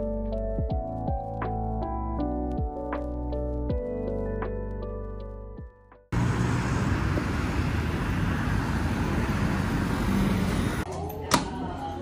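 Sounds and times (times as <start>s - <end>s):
cars driving past: 6.1s - 10.8s.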